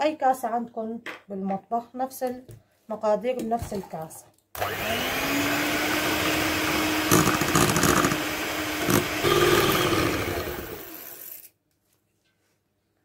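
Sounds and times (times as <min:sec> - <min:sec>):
electric hand mixer whisking: 0:04.6 - 0:11.4.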